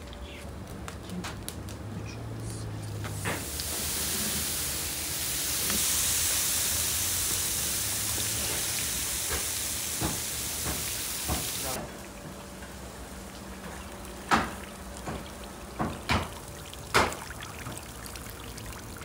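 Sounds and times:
fat and meat juices sizzling: 1.8 - 11.8.

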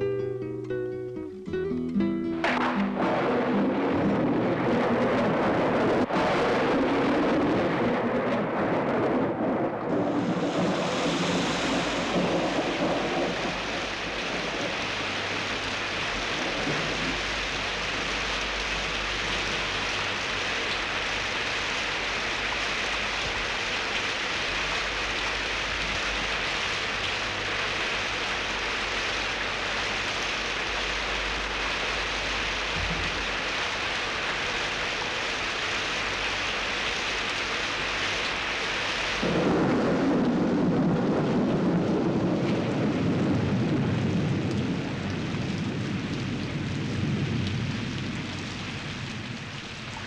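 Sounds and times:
steady rain: 0.0 - 50.0
thunder rumble: 2.4 - 34.3, 39.2 - 50.0.

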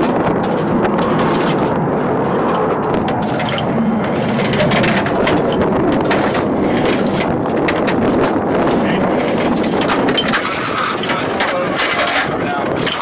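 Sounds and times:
steady mechanical noise: 0.0 - 13.0.

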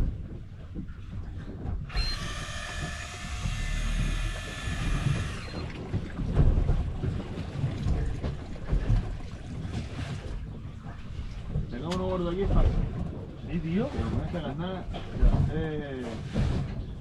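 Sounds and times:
water rumbling against boat: 0.0 - 17.0
wind: 0.0 - 17.0
fishing reel whirring: 1.9 - 5.8.

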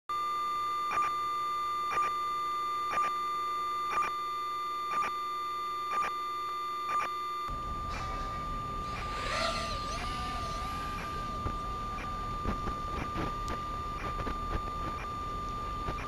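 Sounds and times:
short beeps: 0.1 - 16.0
high electronic tone: 6.9 - 16.0
low rumbling noise: 7.5 - 15.0.

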